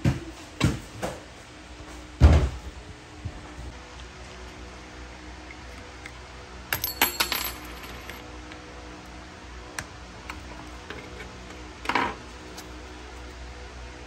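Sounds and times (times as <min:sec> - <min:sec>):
small metal pieces clinking: 0:06.8 - 0:08.2.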